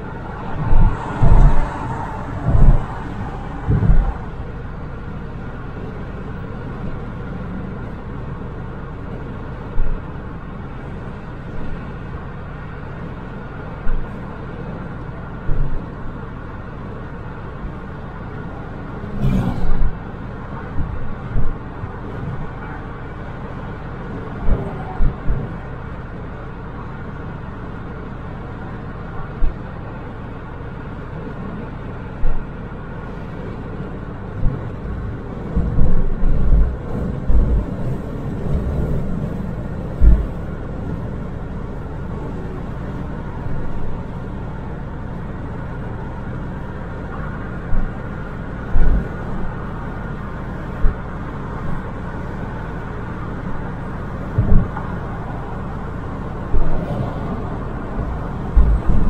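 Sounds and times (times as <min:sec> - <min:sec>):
car road and engine noise: 0:00.0 - 0:59.0
short low thumps: 0:00.6 - 0:04.5, 0:35.5 - 0:39.3, 0:39.9 - 0:40.6.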